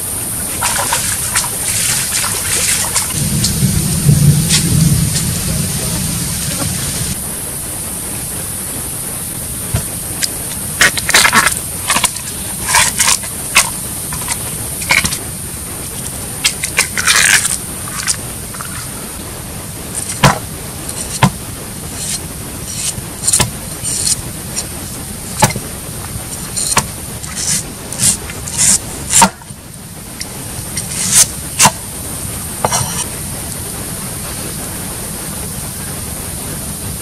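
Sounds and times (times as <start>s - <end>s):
steady hiss: 0.0s - 37.0s
cleaver hacking: 9.7s - 15.2s, 20.0s - 21.4s, 22.0s - 24.7s, 25.3s - 29.6s, 30.2s - 31.9s
husk tearing and peeling: 15.9s - 19.1s, 22.0s - 29.4s, 30.7s - 31.8s
knocks on wooden chopping board: 20.2s - 20.5s.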